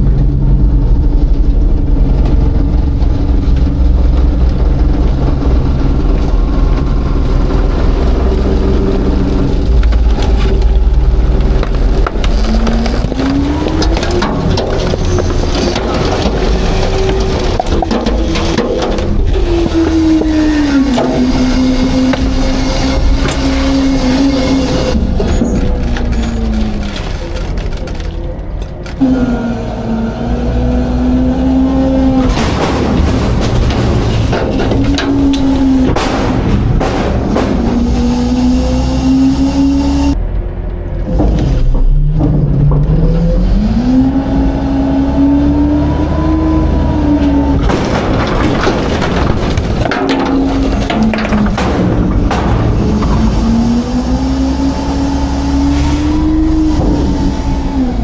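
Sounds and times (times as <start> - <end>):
hydraulic packer whine: 0.0 - 58.0
truck engine rumble: 0.0 - 58.0
faint debris cracks: 2.1 - 22.4, 25.2 - 29.0, 47.5 - 53.6
pallets and trash crashing down: 11.7 - 24.0, 32.2 - 39.2, 47.5 - 54.6.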